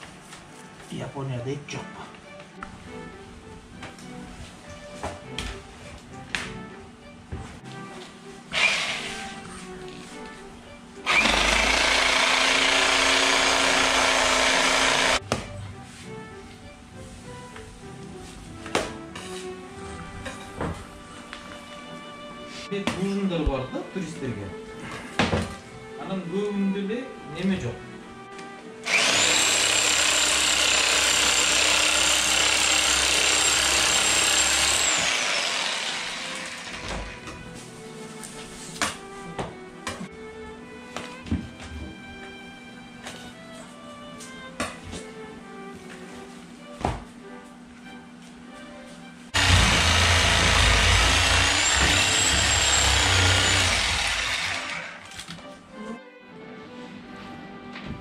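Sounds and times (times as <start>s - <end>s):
power tool motor whining: 8.5s - 9.3s, 11.0s - 15.2s, 28.8s - 37.2s, 49.4s - 55.2s
electric meat saw cutting: 8.5s - 9.4s, 11.0s - 15.2s, 28.8s - 37.3s, 49.4s - 55.3s.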